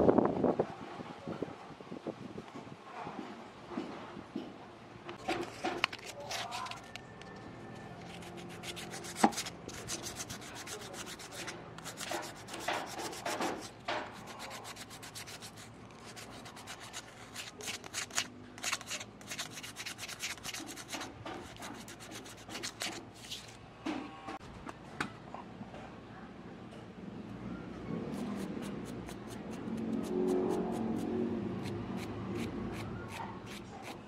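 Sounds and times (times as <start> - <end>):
scrubbing metal by hand: 8.0 - 23.5.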